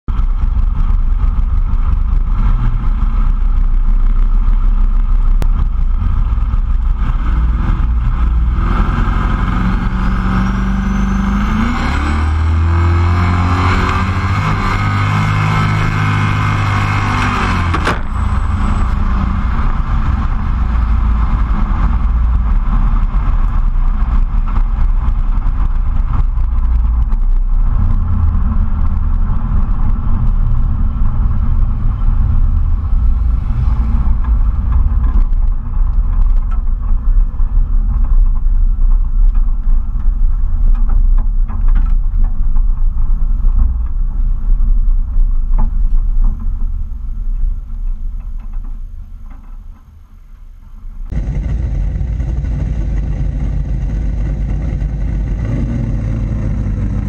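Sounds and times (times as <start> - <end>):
low engine rumble: 0.0 - 57.0
car engines revving: 0.2 - 39.4, 51.1 - 57.0.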